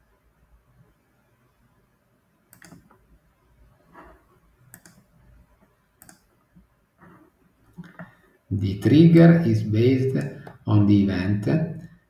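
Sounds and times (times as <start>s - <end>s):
faint computer mouse clicks: 2.5s - 3.0s, 4.7s - 5.1s, 6.0s - 6.3s.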